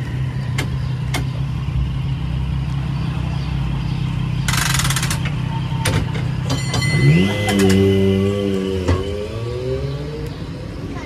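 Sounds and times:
rapid rattling clicks: 4.5 - 5.4.

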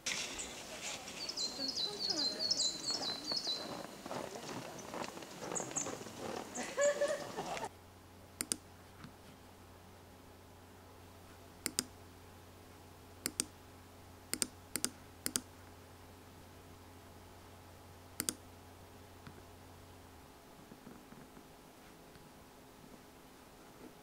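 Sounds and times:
low room hum: 0.0 - 24.0
high bird chirps: 0.1 - 7.1
computer mouse clicking: 8.4 - 8.6, 11.6 - 11.9, 13.2 - 13.5, 14.3 - 15.5, 18.2 - 18.4.

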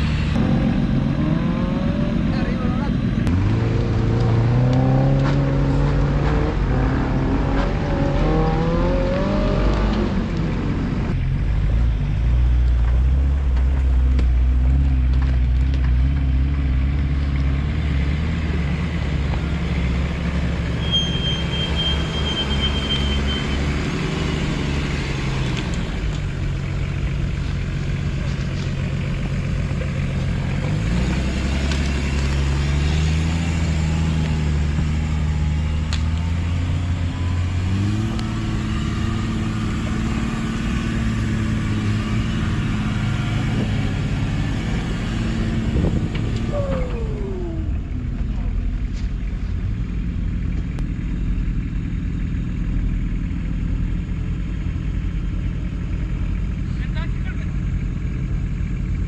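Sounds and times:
engine revving under load: 0.0 - 11.2, 14.4 - 26.4, 28.9 - 48.9.

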